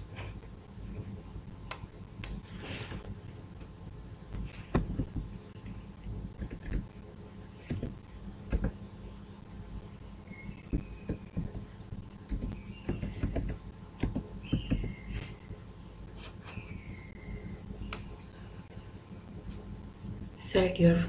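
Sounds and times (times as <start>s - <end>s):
low steady hum: 0.0s - 21.0s
keyboard keys clicking: 6.4s - 6.9s, 8.5s - 8.8s.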